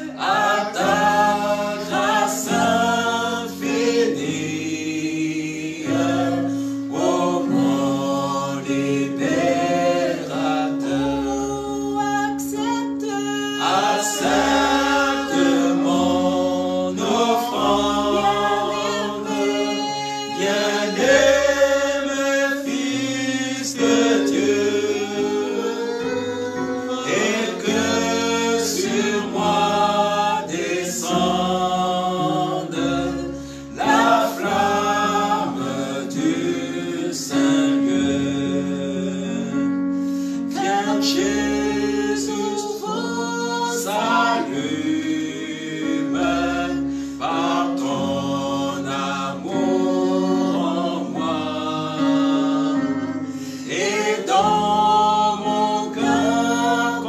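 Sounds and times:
held accompaniment chords: 0:00.0 - 0:43.2
group singing gospel song: 0:00.0 - 0:57.0.

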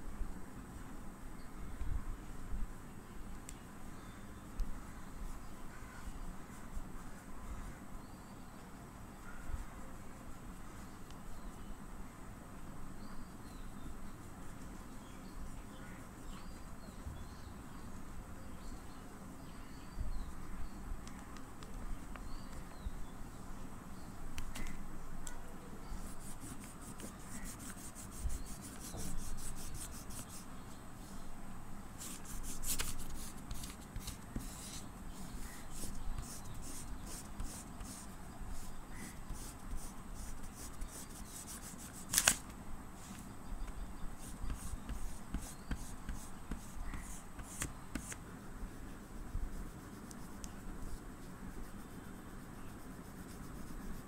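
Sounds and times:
oil pastel scratching on paper: 0:26.0 - 0:30.5, 0:32.0 - 0:42.4, 0:44.2 - 0:48.2, 0:48.8 - 0:54.0.

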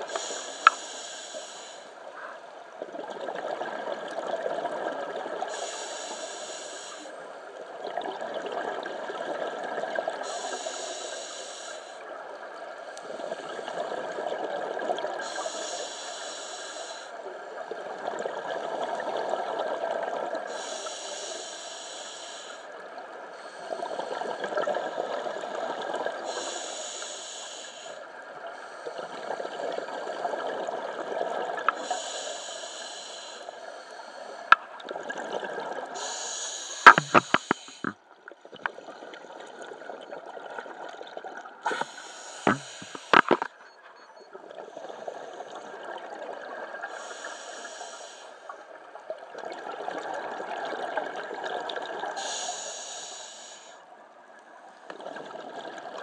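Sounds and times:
regulator inhale hiss: 0:00.0 - 0:02.0, 0:05.5 - 0:07.4, 0:10.2 - 0:12.1, 0:15.2 - 0:17.2, 0:20.5 - 0:24.6, 0:26.2 - 0:30.2, 0:31.7 - 0:34.6, 0:35.8 - 0:38.0, 0:41.6 - 0:43.5, 0:46.8 - 0:48.6, 0:52.1 - 0:53.9
exhaled bubbles underwater: 0:54.9 - 0:56.0.

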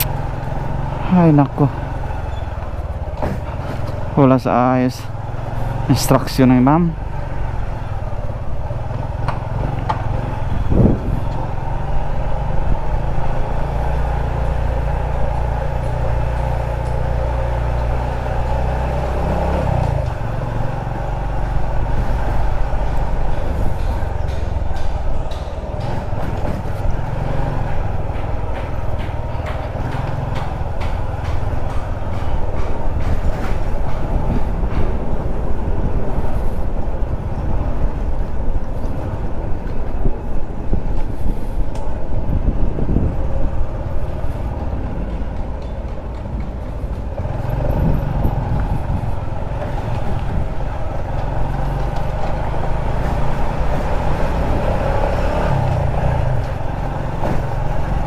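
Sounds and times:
motorcycle engine running: 0:46.7 - 0:53.8.

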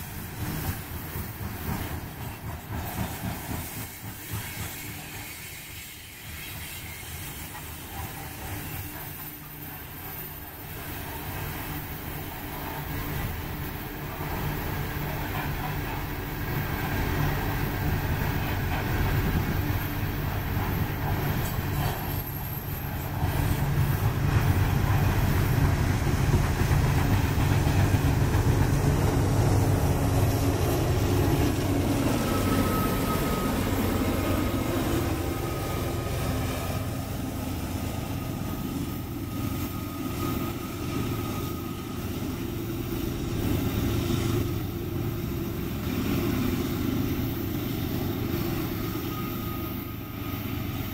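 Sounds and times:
freight train rumbling past: 0:00.0 - 0:50.9
high squeal of wheels: 0:03.7 - 0:11.3, 0:19.7 - 0:23.8, 0:32.0 - 0:35.7, 0:38.0 - 0:42.4, 0:46.9 - 0:50.9.

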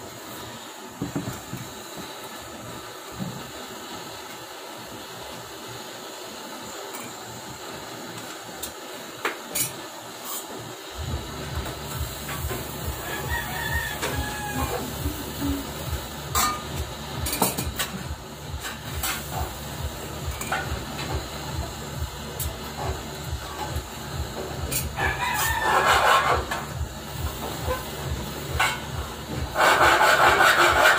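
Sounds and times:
blowtorch flame hissing: 0:00.0 - 0:30.9
rooster crowing: 0:12.9 - 0:15.2, 0:25.0 - 0:26.4.

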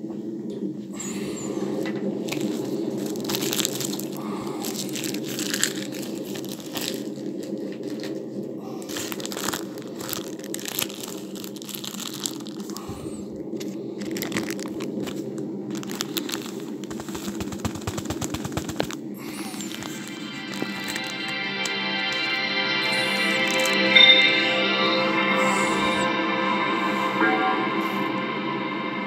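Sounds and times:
crackling clicks: 0:13.5 - 0:24.4
low hum: 0:18.9 - 0:29.0.

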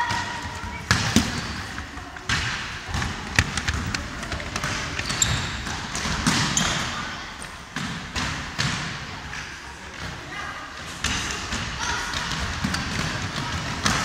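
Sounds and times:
shoe squeaks: 0:04.9 - 0:05.6, 0:06.5 - 0:07.0.

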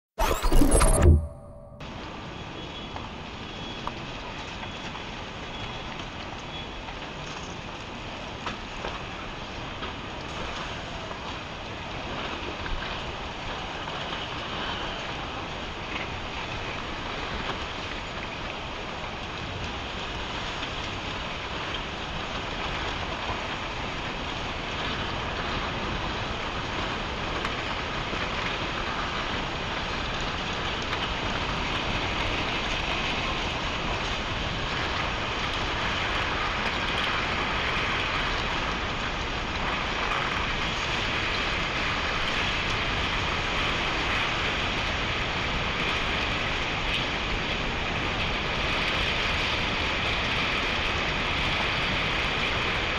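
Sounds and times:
floodwater rushing and churning: 0:07.1 - 0:52.9.

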